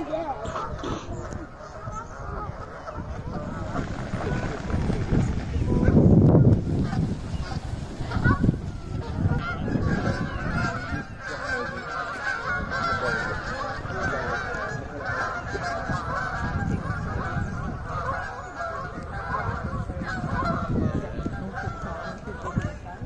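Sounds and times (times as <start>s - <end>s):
geese honking in flight: 0.0s - 23.0s.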